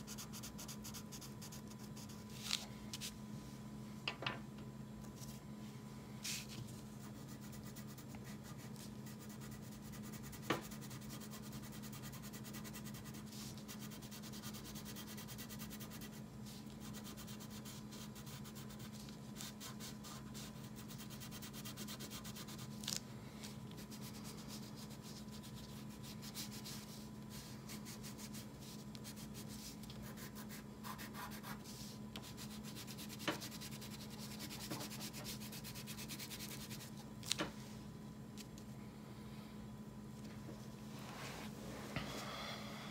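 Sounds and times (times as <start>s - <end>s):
crayon scratching on paper: 29.0s - 31.6s.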